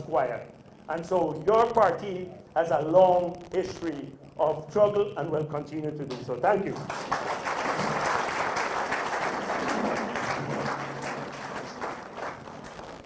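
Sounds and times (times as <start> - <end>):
audience applauding: 6.7 - 13.0.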